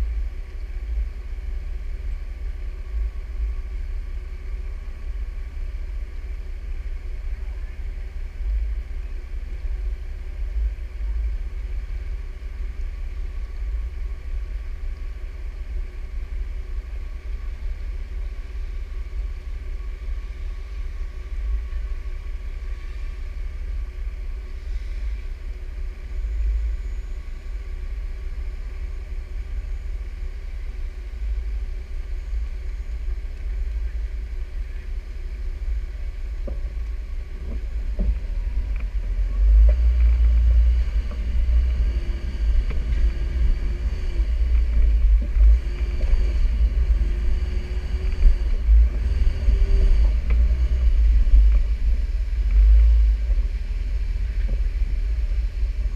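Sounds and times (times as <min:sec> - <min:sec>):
off-road vehicle engine rumbling: 0:00.0 - 0:55.9.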